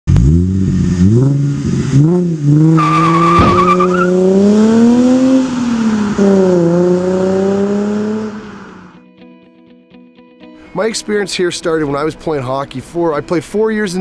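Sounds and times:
car engine revving: 0.1 - 9.0
tire squeal: 2.7 - 4.2.

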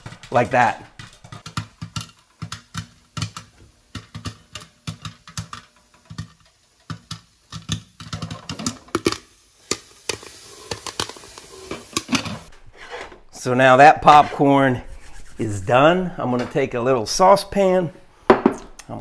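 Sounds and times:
popcorn popping in covered pot: 0.0 - 12.5.

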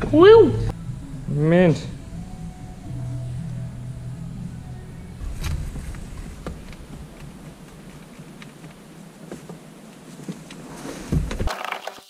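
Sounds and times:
low steady hum: 0.0 - 11.5
dull thump: 5.2 - 9.6, 10.9 - 11.5.

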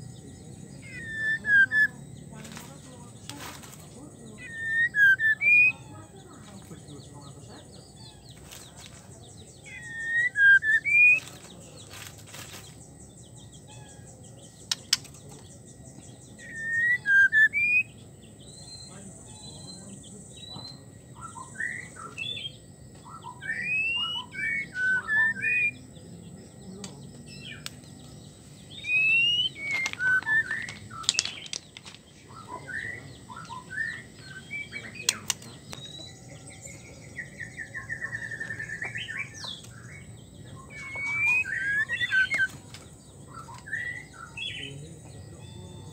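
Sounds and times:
sharp clicks: 14.6 - 15.5, 35.0 - 36.0.

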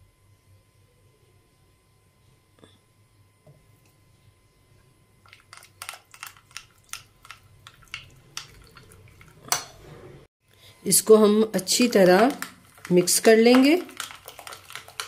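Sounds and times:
wet squishes of sauce: 5.2 - 9.6, 11.8 - 15.0.

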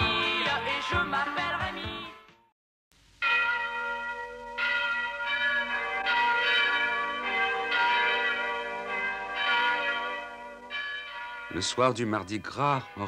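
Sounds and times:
church bells ringing: 3.2 - 13.0.

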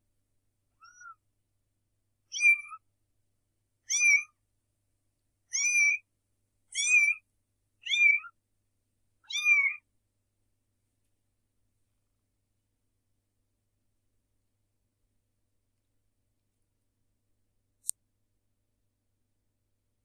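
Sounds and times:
kitten mewing: 0.8 - 1.2, 2.3 - 2.8, 3.9 - 4.3, 5.5 - 6.0, 6.7 - 7.2, 7.8 - 8.3, 9.2 - 9.8.

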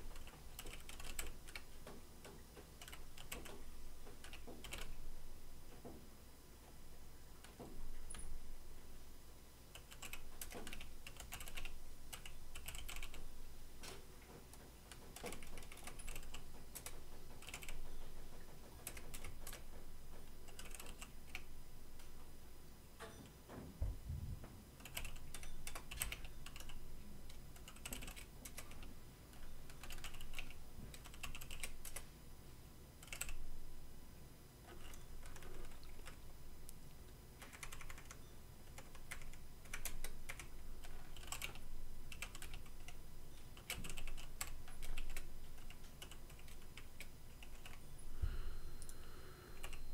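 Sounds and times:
computer keyboard typing: 0.0 - 2.0, 2.8 - 5.0, 9.7 - 13.2, 14.9 - 21.5, 24.8 - 32.1, 33.0 - 33.4, 34.7 - 36.2, 37.4 - 43.0, 43.6 - 47.8, 49.6 - 49.9.

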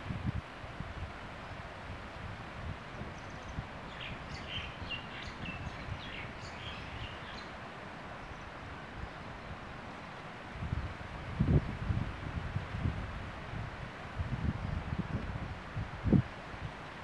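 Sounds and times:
wind buffeting microphone: 0.0 - 7.4, 10.5 - 17.0
faint high bird chirps: 3.2 - 7.6.

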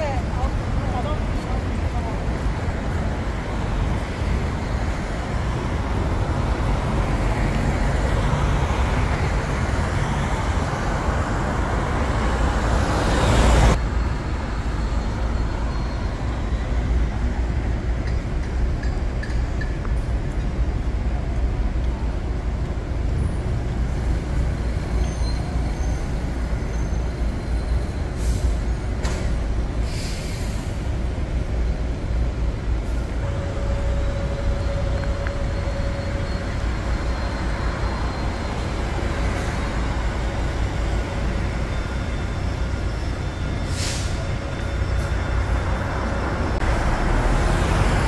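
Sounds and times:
traffic rumble: 0.0 - 48.0
air brake hiss: 28.1 - 28.7, 29.8 - 30.9, 43.7 - 44.3.

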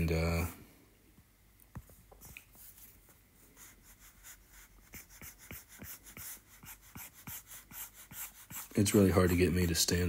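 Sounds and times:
stylus scratching strokes: 3.6 - 10.0.

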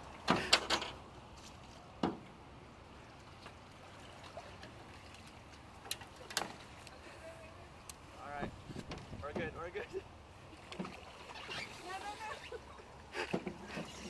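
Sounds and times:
sharp knocks on aluminum canoe: 2.0 - 2.3
water splashing off a paddle: 10.5 - 12.3.

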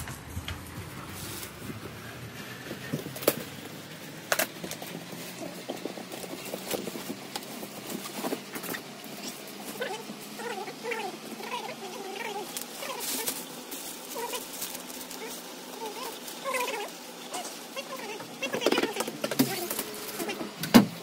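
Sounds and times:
plastic wrap crinkling: 0.0 - 20.4
cardboard box rustling: 4.8 - 8.8.

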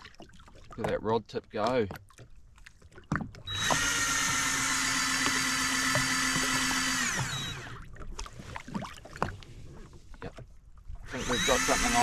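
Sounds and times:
fishing reel motor whine: 3.4 - 7.9, 11.0 - 12.0.

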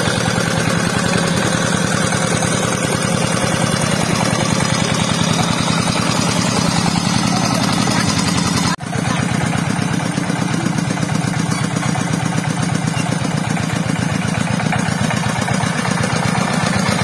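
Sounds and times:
diesel engine chugging: 0.0 - 17.0
rotary tiller in soil: 0.0 - 17.0.

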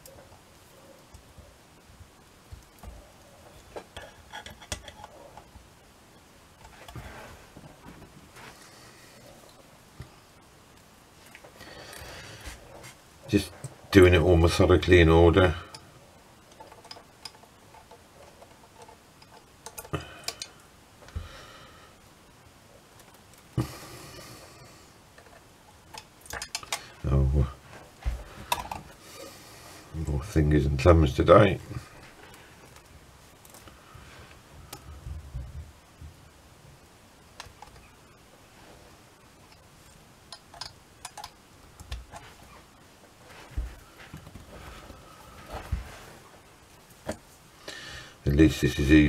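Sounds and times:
soft handling bumps: 41.8 - 47.4.

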